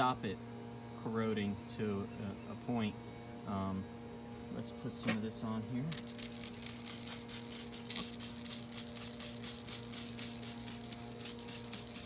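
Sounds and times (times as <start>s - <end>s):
steady low hum: 0.0s - 12.0s
spray bottle squirting: 5.9s - 12.0s.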